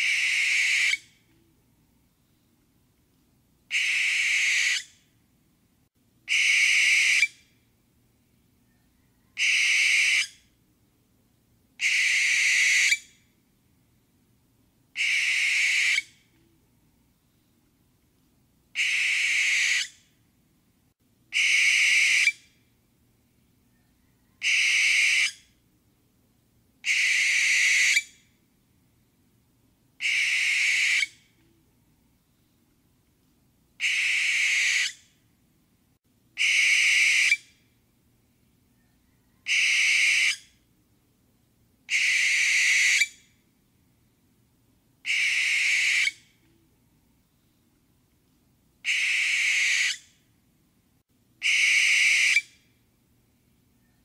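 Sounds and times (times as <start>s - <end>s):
barn owl screeching: 0.0s - 1.1s, 3.7s - 4.9s, 6.3s - 7.4s, 9.3s - 10.4s, 11.8s - 13.1s, 15.0s - 16.1s, 18.8s - 20.0s, 21.3s - 22.4s, 24.3s - 25.4s, 26.8s - 28.2s, 30.0s - 31.2s, 33.8s - 35.0s, 36.4s - 37.5s, 39.4s - 40.5s, 41.9s - 43.2s, 45.0s - 46.2s, 48.8s - 50.1s, 51.4s - 52.6s.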